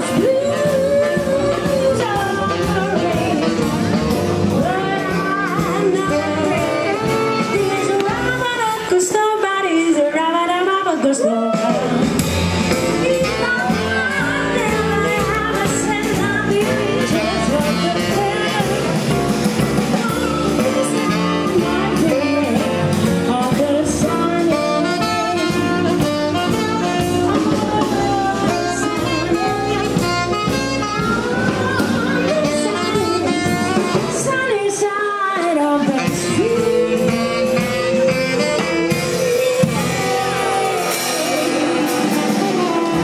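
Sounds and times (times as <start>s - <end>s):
low bass notes: 0.0s - 8.5s, 11.7s - 34.3s
drums: 0.0s - 43.0s
piano: 0.0s - 43.0s
saxophone: 0.0s - 43.0s
woman singing: 0.0s - 43.0s.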